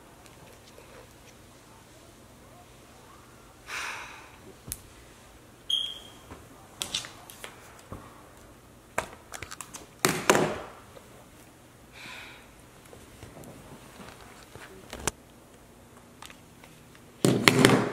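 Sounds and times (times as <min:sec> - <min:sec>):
soft exhale: 0:03.6 - 0:04.5, 0:11.9 - 0:12.5.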